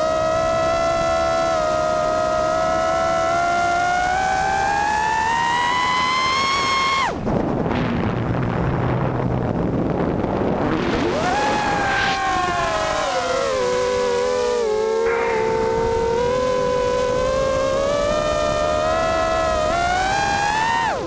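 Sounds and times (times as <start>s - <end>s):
quadcopter motors whining: 0.0s - 7.2s, 10.6s - 21.0s
rushing air: 14.9s - 17.0s.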